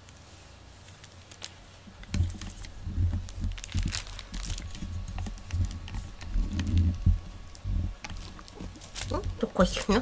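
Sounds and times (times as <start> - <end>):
plastic wrapping crinkling: 0.7 - 10.0
dull low thumps: 2.1 - 8.3.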